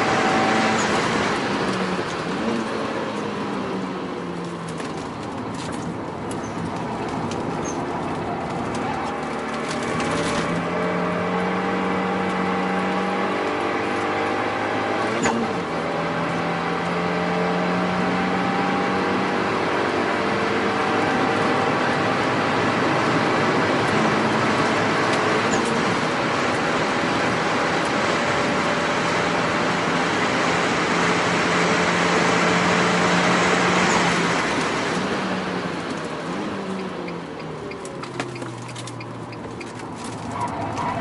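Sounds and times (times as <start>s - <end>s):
car engine running hard: 0.0s - 41.0s.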